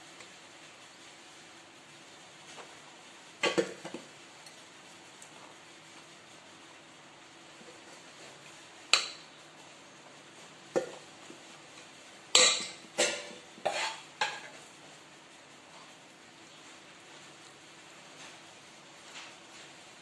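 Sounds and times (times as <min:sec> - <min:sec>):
spoon clinking against pot: 0:12.4 - 0:14.5.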